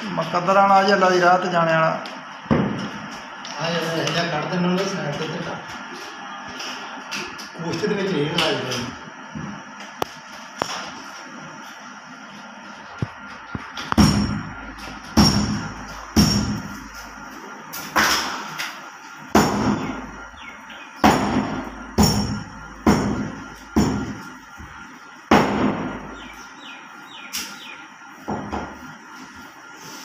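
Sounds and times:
cleavers chopping meat and bone: 13.7s - 16.7s, 19.3s - 24.2s, 25.3s - 26.3s.

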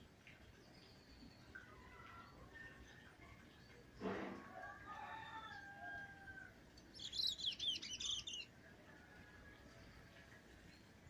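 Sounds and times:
rustle: 0.0s - 11.0s
songbirds whistling and chirping: 6.8s - 8.5s.

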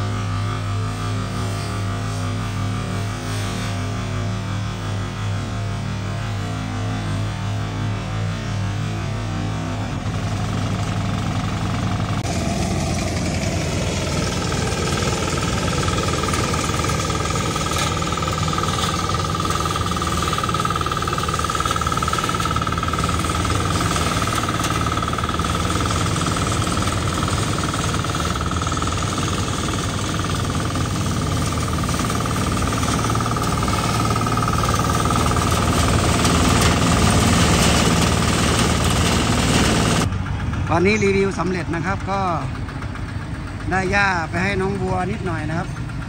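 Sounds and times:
grass chopper whine: 0.0s - 46.0s
tractor engine chugging: 9.9s - 46.0s.

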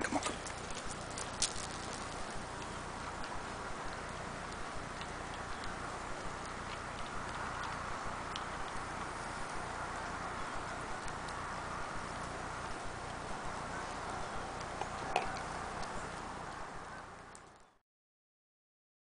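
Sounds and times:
dog claws ticking on concrete: 14.5s - 16.2s.

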